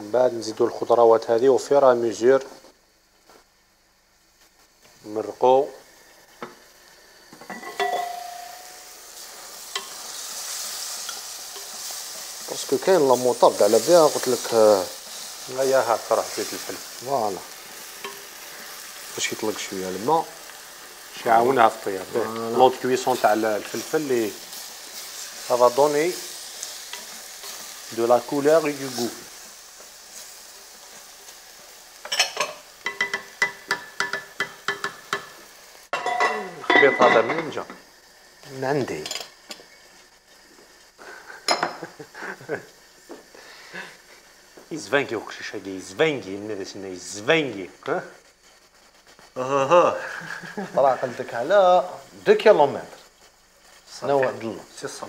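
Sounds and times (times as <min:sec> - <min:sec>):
meat and onion sizzling in a pot: 0:00.0 - 0:55.0
wooden spoon stirring: 0:20.8 - 0:31.1.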